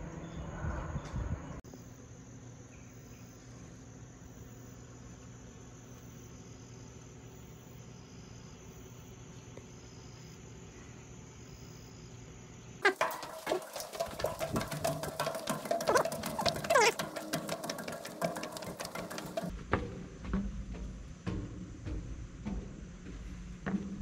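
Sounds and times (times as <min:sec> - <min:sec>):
insects chirping: 0:01.6 - 0:19.6.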